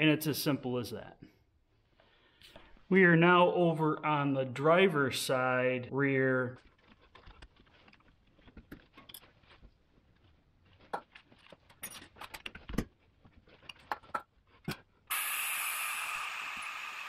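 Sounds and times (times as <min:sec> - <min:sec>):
fluid extractor hissing: 0:15.1 - 0:17.0.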